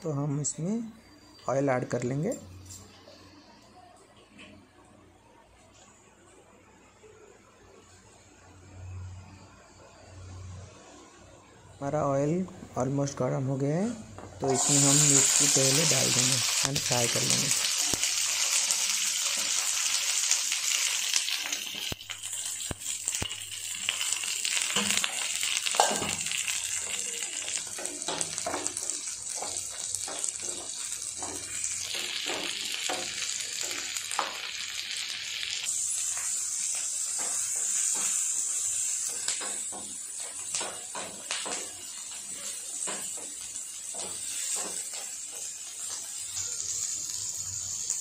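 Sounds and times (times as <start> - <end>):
chillies sizzling in oil: 8.6 - 48.0
spatula knocking and scraping pan: 27.7 - 34.3.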